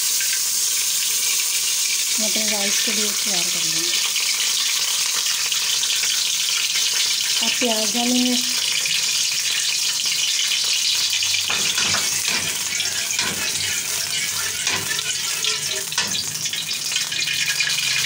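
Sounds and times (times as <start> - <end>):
ghee sizzling in a pot: 0.0 - 18.0
metal spoon scraping a pot: 11.4 - 18.0.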